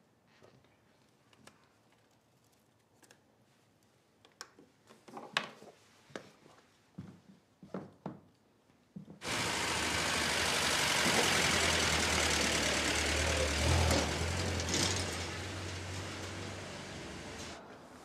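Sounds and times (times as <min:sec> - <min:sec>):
car engine running: 0:09.2 - 0:17.6.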